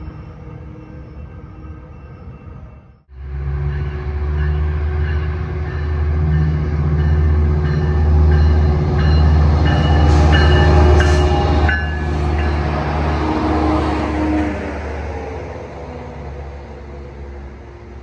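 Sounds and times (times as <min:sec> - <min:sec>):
diesel locomotive engine drone: 0:00.0 - 0:18.0
locomotive bell ringing: 0:03.6 - 0:12.9.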